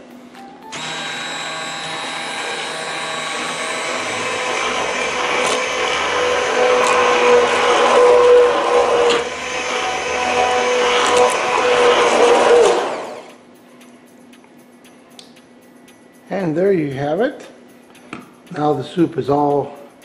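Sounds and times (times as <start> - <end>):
hand blender motor whining: 0.7 - 13.4.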